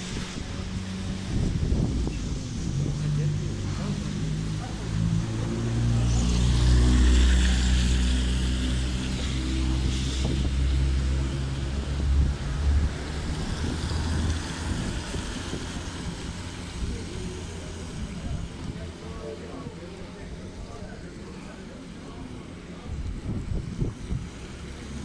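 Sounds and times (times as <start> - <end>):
wind buffeting microphone: 0.0 - 5.7, 22.8 - 24.6
tyres hissing on wet asphalt: 0.0 - 25.0
vehicle engine drone: 0.0 - 25.0.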